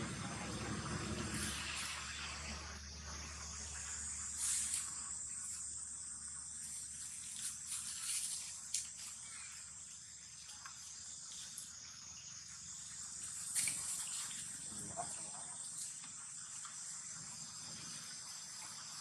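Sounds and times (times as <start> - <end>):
high-pitched insect hiss: 0.2 - 19.0
rustles in dry leaf litter: 4.3 - 5.0, 6.8 - 9.7.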